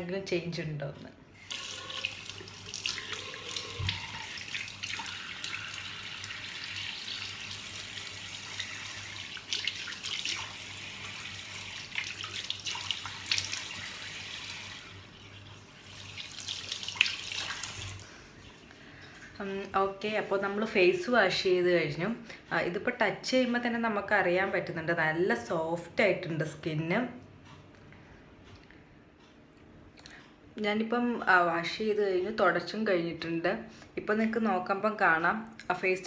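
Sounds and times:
tap water running into sink: 1.4 - 18.0
water splashing: 1.4 - 18.6.

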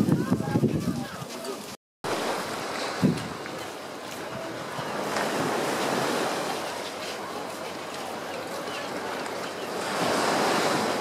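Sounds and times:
wind on microphone: 0.0 - 7.4
harbour ambience: 0.0 - 11.0.

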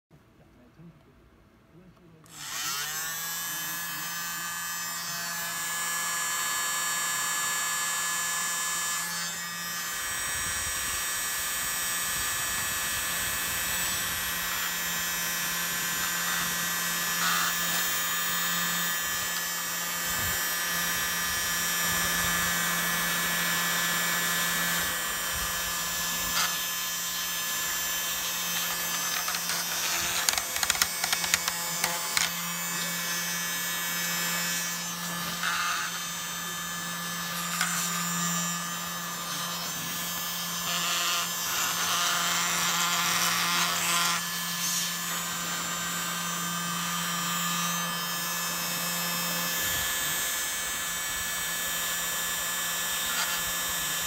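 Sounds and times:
handheld blower motor whining: 2.2 - 54.0.

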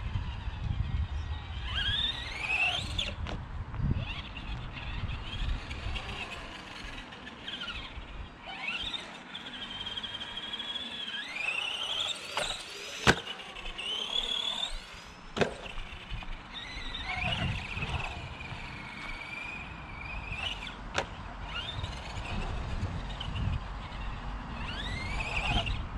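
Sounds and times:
electric motor whining: 0.0 - 25.9
toy truck hitting concrete: 5.2 - 19.5.

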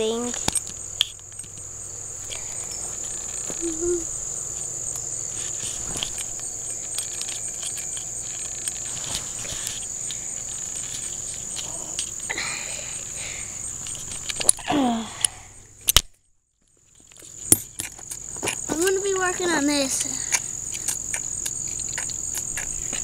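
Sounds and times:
crickets chirping: 0.0 - 23.0.

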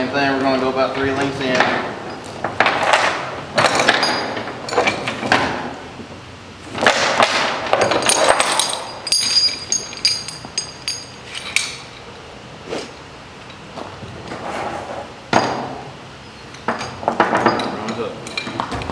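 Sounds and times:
chain rattling and clanking: 0.7 - 5.8, 6.8 - 12.0, 16.6 - 18.9
sharp metal clinks: 8.0 - 11.9.

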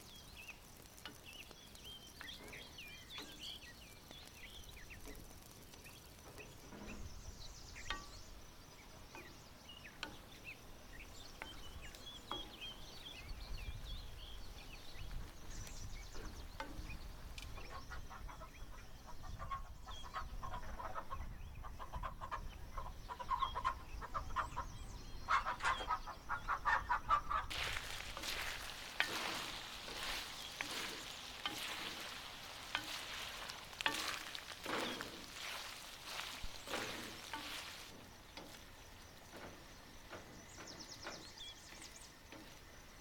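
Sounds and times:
noisy hiss with clicks: 0.0 - 10.6
chickens clucking: 25.3 - 38.6.

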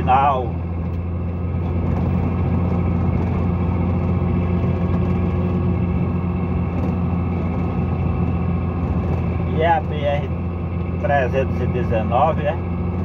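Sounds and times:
truck engine drone: 0.0 - 13.0
tyre and road noise: 0.0 - 13.0.

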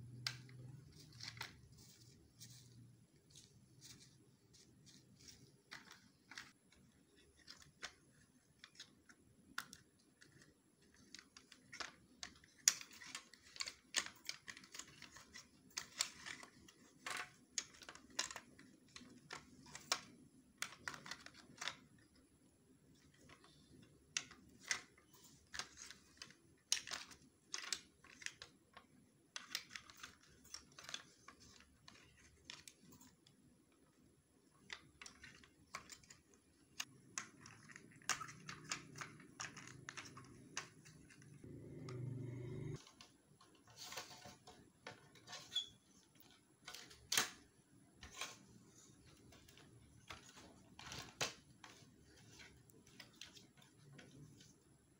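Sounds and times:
plastic toy case clicking: 34.4 - 42.0.

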